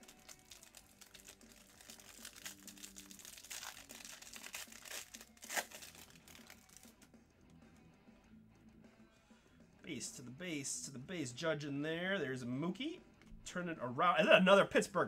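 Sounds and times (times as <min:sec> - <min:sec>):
plastic wrapper tearing and crinkling: 0:00.0 - 0:07.1.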